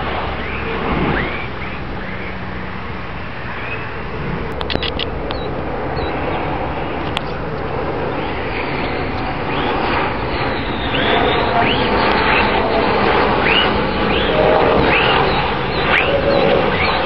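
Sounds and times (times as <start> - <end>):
fighter jet roaring by: 0.0 - 17.0
sharp clicks: 4.5 - 6.2.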